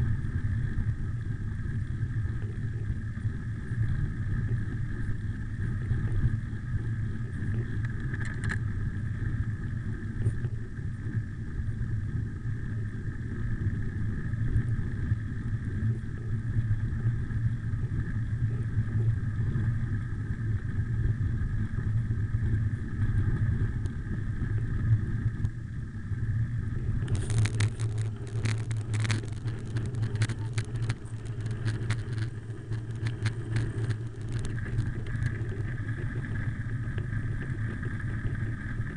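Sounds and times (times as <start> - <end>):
bicycle tyres and wind rumble: 0.0 - 38.9
gravel and bike parts rattling: 7.4 - 9.0, 26.5 - 38.9.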